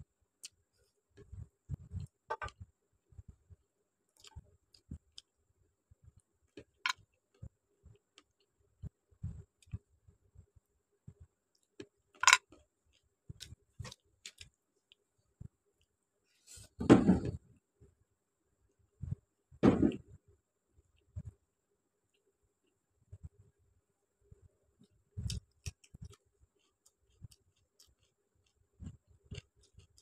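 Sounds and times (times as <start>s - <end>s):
chewing: 25.2s - 30.0s.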